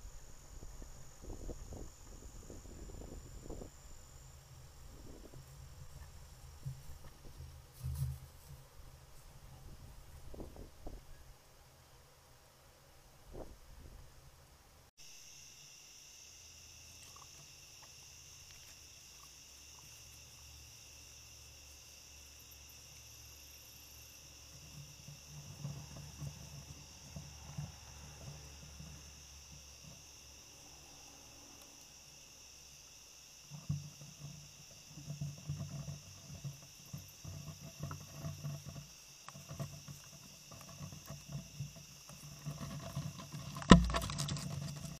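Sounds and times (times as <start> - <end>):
crickets trilling: 0.0 - 12.0, 15.0 - 45.0
rustling and bumps near microphone: 4.6 - 11.1, 24.4 - 30.2, 33.4 - 45.0.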